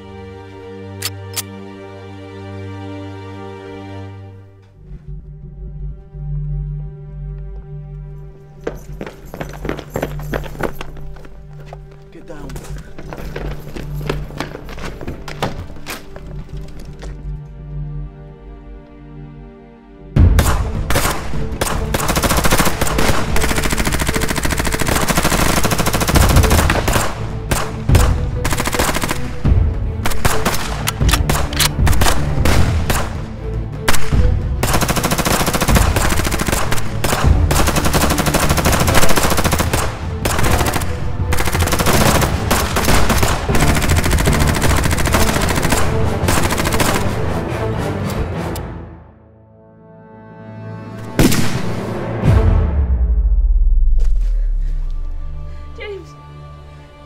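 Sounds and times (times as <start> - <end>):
background music: 0.0 - 57.0
rapid gunfire: 20.4 - 29.4, 34.6 - 47.1.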